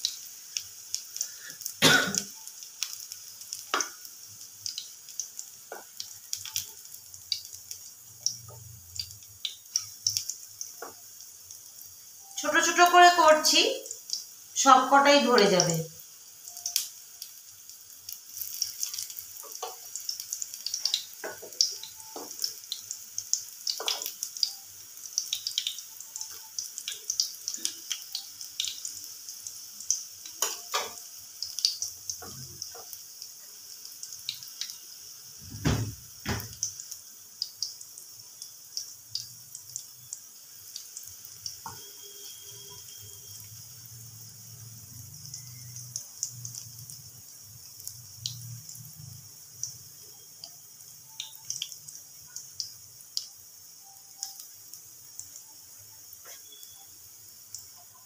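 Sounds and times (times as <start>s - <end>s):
pakoras sizzling in oil: 0.0s - 58.0s.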